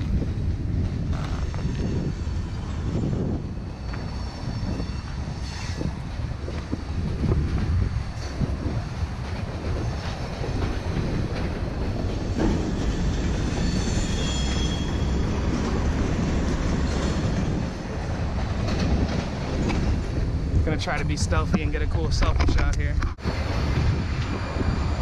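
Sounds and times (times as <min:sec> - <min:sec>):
freight train rumbling: 0:00.0 - 0:25.0
high wheel squeal: 0:01.2 - 0:06.0, 0:12.2 - 0:17.7.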